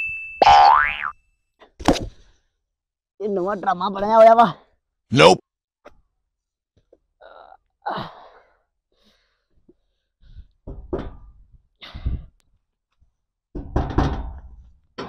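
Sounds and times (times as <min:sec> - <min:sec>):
man sighing and groaning: 0:05.1 - 0:05.4.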